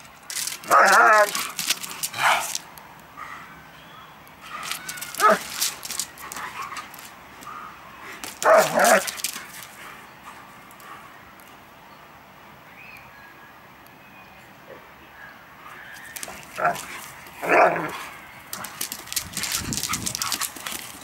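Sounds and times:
dogs play-fighting: 0.0 - 3.4, 4.4 - 11.1, 15.9 - 21.0
dogs barking: 4.5 - 5.6, 8.4 - 9.1.

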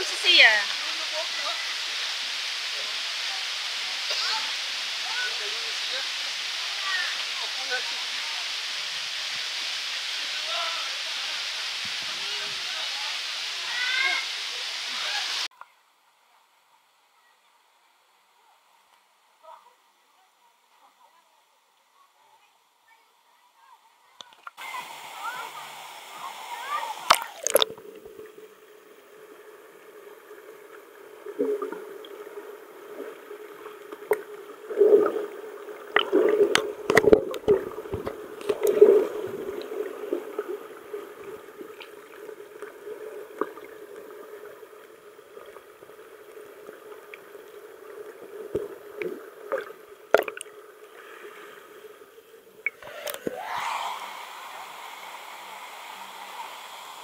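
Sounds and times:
muffled water gurgling and sloshing: 27.0 - 50.8
knocks and splashes: 35.9 - 39.4, 49.5 - 50.5.

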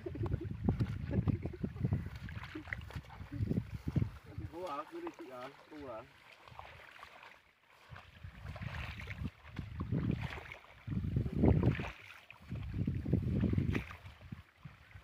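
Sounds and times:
wind buffeting microphone: 0.0 - 4.8, 7.9 - 15.0.

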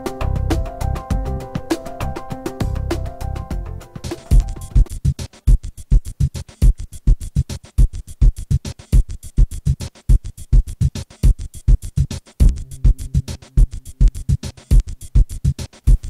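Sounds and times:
electronic music with drum-machine beat: 0.0 - 16.0
held bass note: 12.4 - 14.4.

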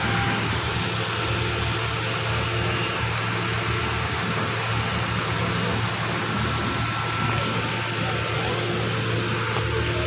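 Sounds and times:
heavy rain pouring: 0.0 - 10.0.

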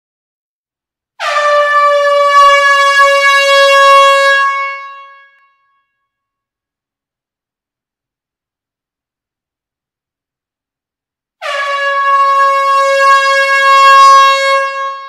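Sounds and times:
shofar long blast: 1.2 - 6.0, 11.4 - 15.0.

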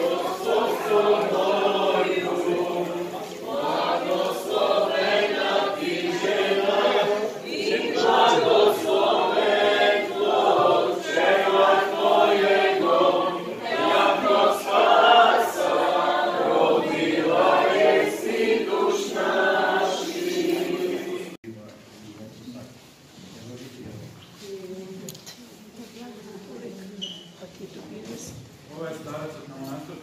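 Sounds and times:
group singing a hymn: 0.0 - 21.4.

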